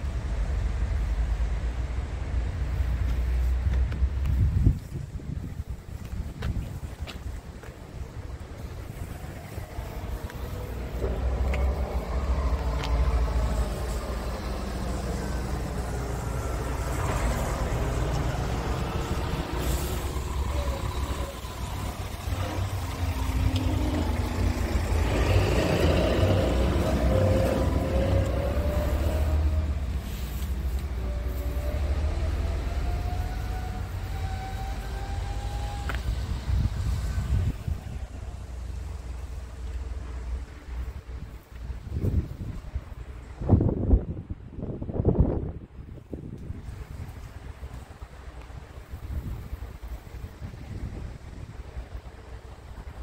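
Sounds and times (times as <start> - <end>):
truck diesel engine rumbling: 6.7 - 43.4.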